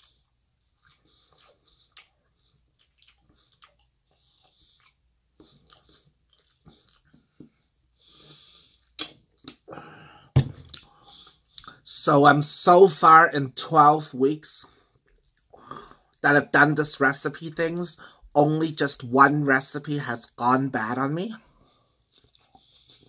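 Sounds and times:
person breathing: 0:07.4 - 0:09.0, 0:09.7 - 0:11.8, 0:14.7 - 0:16.1, 0:18.0 - 0:18.3.

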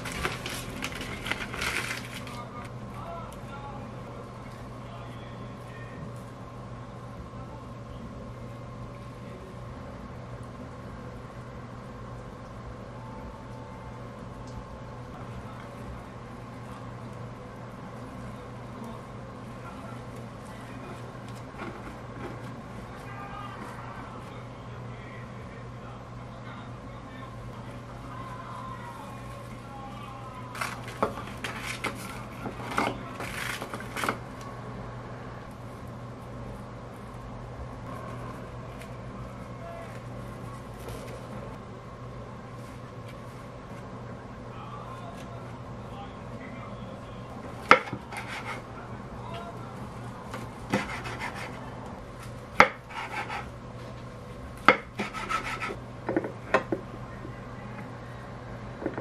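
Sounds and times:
steady low hum: 0:00.0 - 0:59.0
knife rasping through seaweed: 0:48.0 - 0:48.6, 0:50.7 - 0:51.6, 0:52.9 - 0:53.5, 0:55.0 - 0:55.8.

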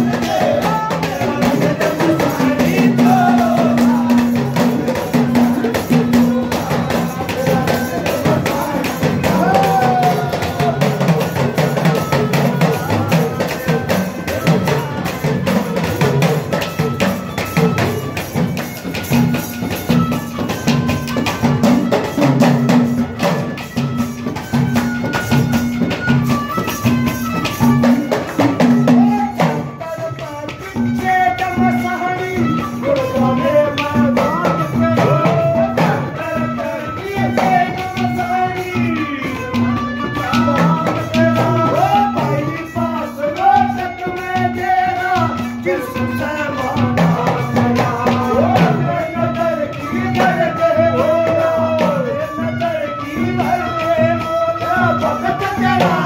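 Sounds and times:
drum and clay pot percussion: 0:00.0 - 0:56.0.

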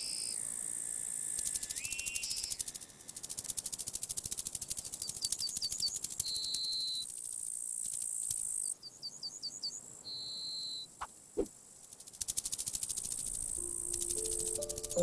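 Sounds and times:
high whistle-like tone: 0:13.6 - 0:15.0
short rising chirps: 0:13.6 - 0:15.0
thin high hiss: 0:13.6 - 0:15.0.

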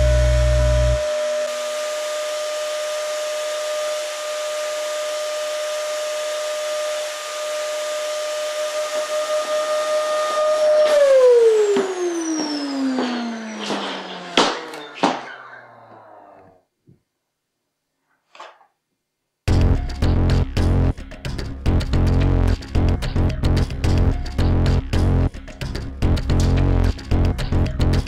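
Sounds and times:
vacuum cleaner whine: 0:00.0 - 0:16.6
vacuum motor winding down: 0:00.0 - 0:16.6
handling knocks: 0:11.8 - 0:16.1.

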